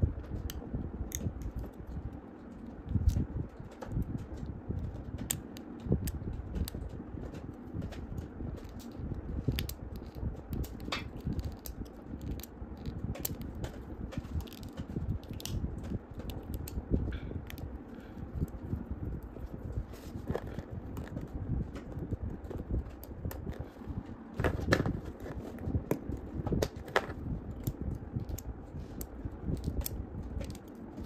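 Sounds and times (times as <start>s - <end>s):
fingers rustling on a figure: 0.0s - 31.0s.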